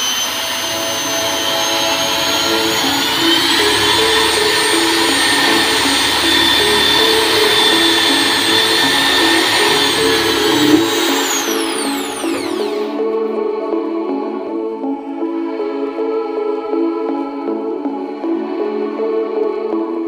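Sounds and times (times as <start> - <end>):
electric drill boring into plywood: 0.0 - 13.0
background music: 0.0 - 20.0.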